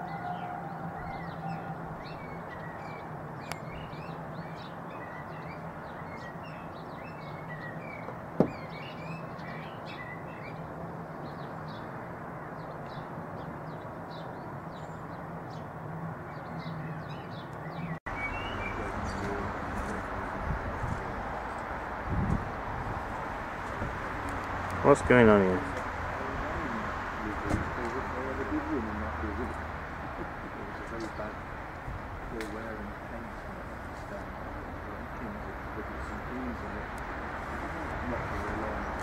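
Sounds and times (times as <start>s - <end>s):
small birds chirping: 0.0s - 39.0s.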